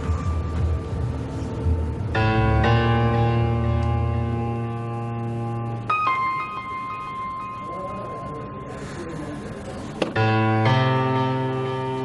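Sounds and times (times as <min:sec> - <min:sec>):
low bass: 0:00.0 - 0:05.9
sustained music chords: 0:00.0 - 0:12.0.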